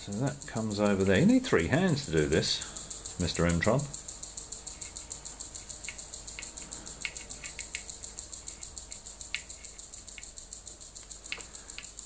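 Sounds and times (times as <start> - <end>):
cable being handled: 5.6 - 10.3.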